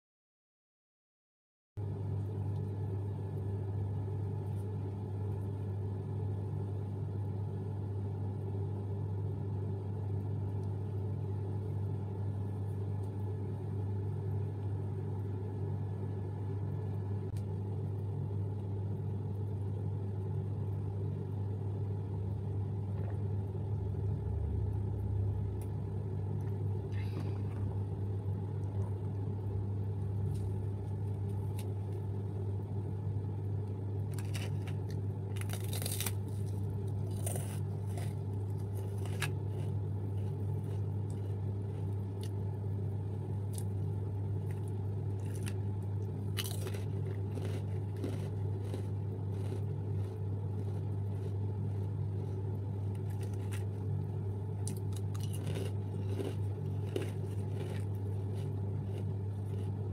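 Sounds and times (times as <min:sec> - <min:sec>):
steady low hum: 0:01.8 - 0:59.9
crackling snack wrapper: 0:34.0 - 0:42.4, 0:44.4 - 0:54.0, 0:54.6 - 0:59.9.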